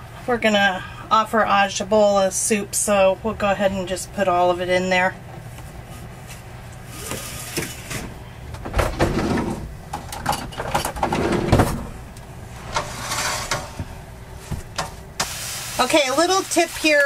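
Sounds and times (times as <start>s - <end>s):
drawer opening and rummaging: 8.7s - 11.9s
utensils clattering: 12.7s - 13.8s.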